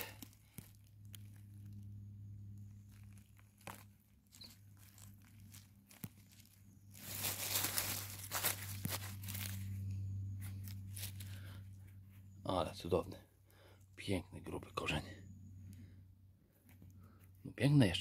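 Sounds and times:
dry leaves and twigs crunching: 0.0s - 13.1s.

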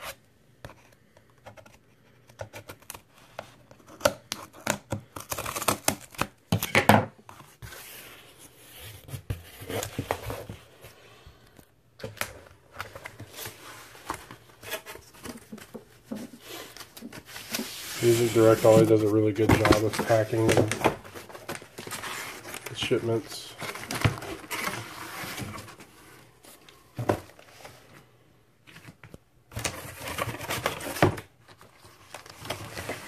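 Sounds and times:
cardboard flaps scraping: 12.8s - 26.0s.

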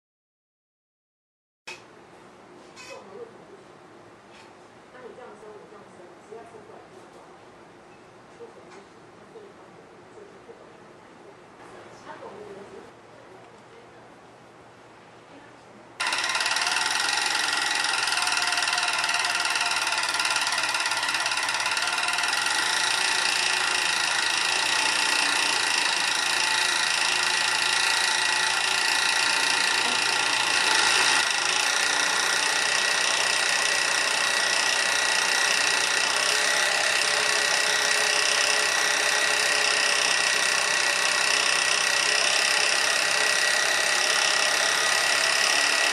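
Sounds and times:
overlock sewing machine running: 16.0s - 45.9s.

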